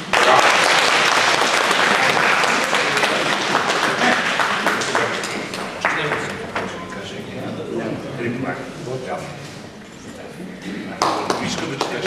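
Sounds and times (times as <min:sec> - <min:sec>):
audience applauding: 0:00.0 - 0:06.8, 0:11.0 - 0:12.0.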